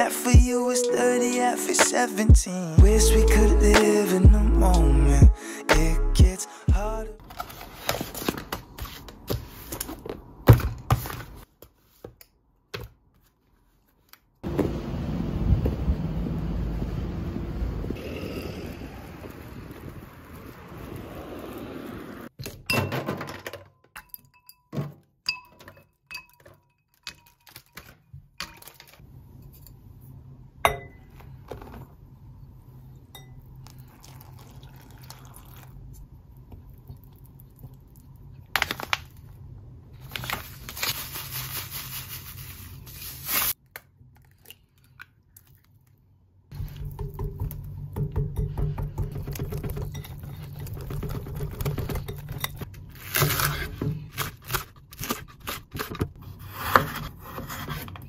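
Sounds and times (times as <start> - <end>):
wind on microphone: 15.4 - 22.3
bowl and utensils clinking: 23.9 - 29.0, 46.8 - 52.7
water pouring: 33.7 - 35.8.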